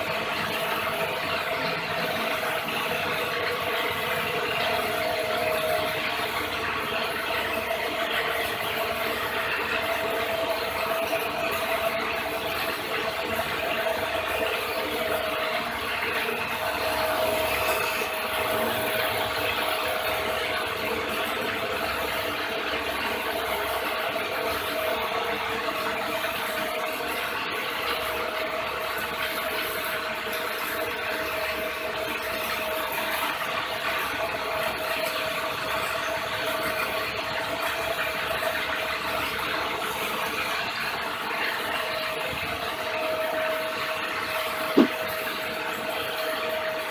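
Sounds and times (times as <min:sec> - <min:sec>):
motor generator rig whirring: 0:00.0 - 0:46.9
steady whine: 0:39.8 - 0:46.8.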